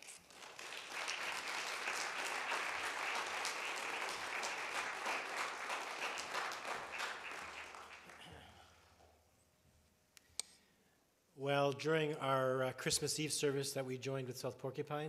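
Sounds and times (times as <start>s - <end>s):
congregation applauding: 0.0s - 8.9s.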